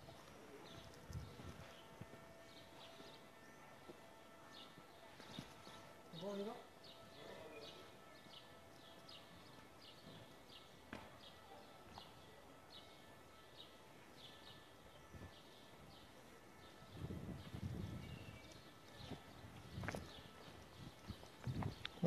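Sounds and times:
footsteps clicking on pavement: 0.0s - 3.2s, 17.4s - 22.0s.

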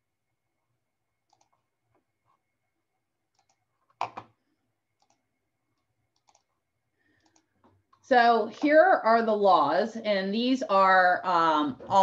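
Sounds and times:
computer mouse clicks: 1.2s - 1.6s, 3.3s - 4.3s, 5.0s - 5.2s, 6.1s - 6.5s, 7.2s - 7.8s.

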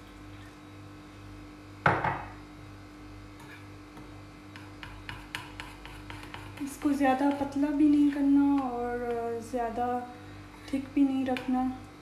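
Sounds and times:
sharp knock on counter: 1.8s - 2.3s
spoon clicking and scraping in bowl: 4.5s - 9.4s.

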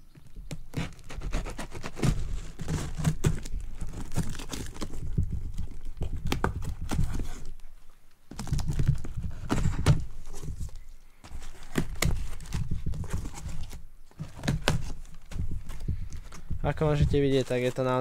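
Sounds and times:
knife cutting packing tape: 0.7s - 5.0s
tape tearing: 0.7s - 7.6s, 8.3s - 16.4s
cardboard flaps pulled open: 0.8s - 7.6s, 8.3s - 18.0s.

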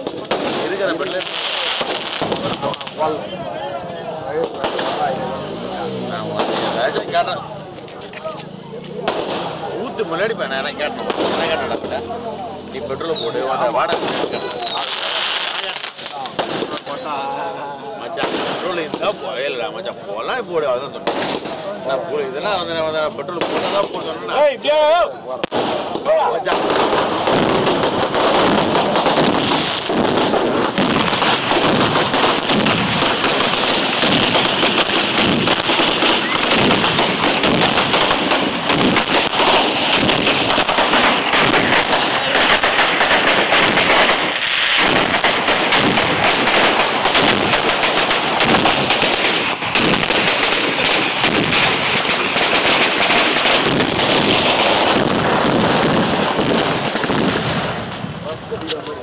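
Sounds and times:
firecrackers crackling: 0.0s - 59.0s.

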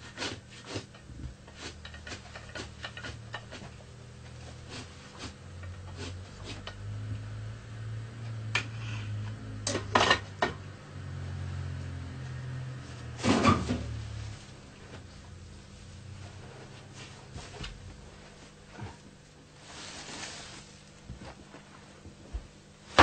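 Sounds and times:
hand scraper scraping sheepskin: 0.0s - 6.9s.

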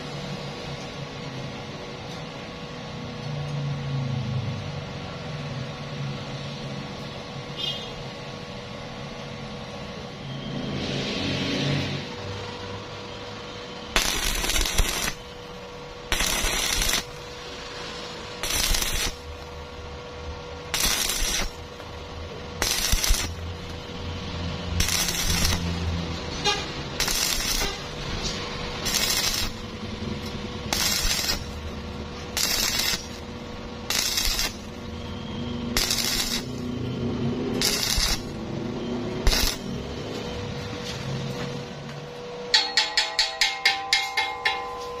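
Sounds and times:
steady hum: 12.0s - 45.0s
welding arc crackling: 13.9s - 40.3s.

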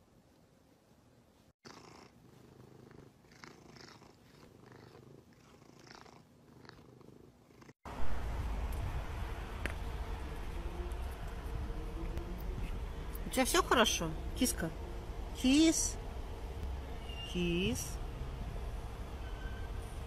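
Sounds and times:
cat purring: 1.6s - 7.8s
low rumble: 7.9s - 20.0s.

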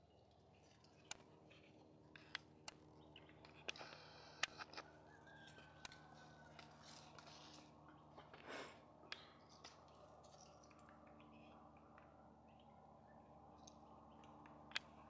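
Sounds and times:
sharp clicks and crackles: 0.2s - 12.7s, 13.5s - 15.0s.

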